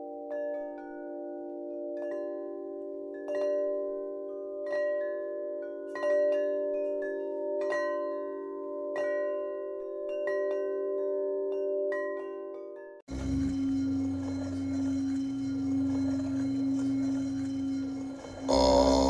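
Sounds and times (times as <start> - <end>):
low sustained drone: 13.1 - 19.0.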